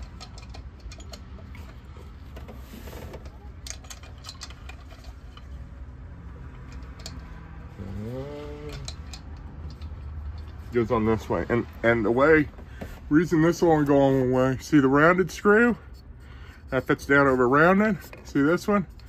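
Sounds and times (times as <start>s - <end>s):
man humming: 7.8s - 9.0s.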